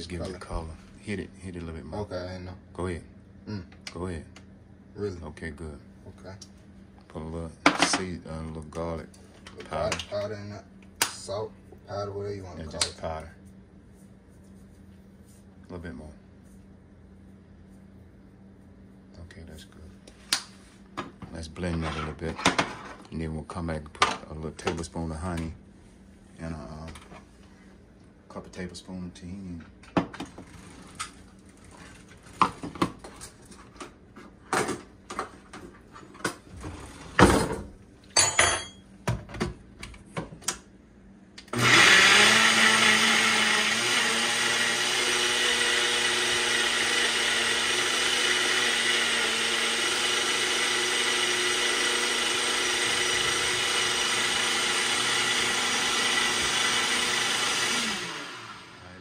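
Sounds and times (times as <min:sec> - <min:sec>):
blender motor running: 0:41.4 - 0:59.0.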